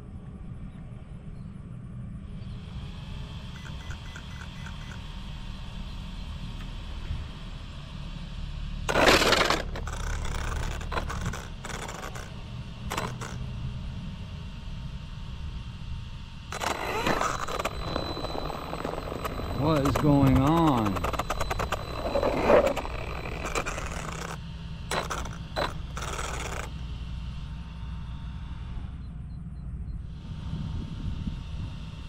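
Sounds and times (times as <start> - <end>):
toy truck rattling and scraping: 8.9 - 13.4, 16.5 - 26.7.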